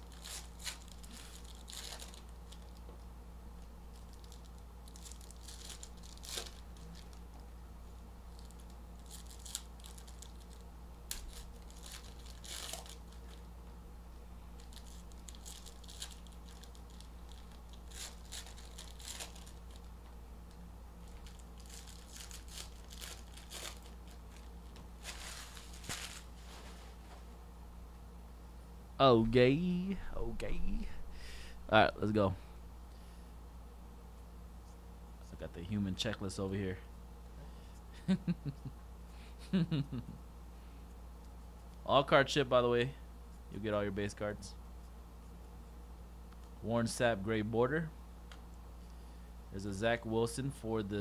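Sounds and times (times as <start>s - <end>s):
plastic wrapping crinkling and tearing: 0.0s - 2.8s, 3.9s - 7.2s, 8.3s - 13.4s, 14.6s - 19.9s, 21.0s - 26.9s
faint low hum: 0.0s - 51.0s.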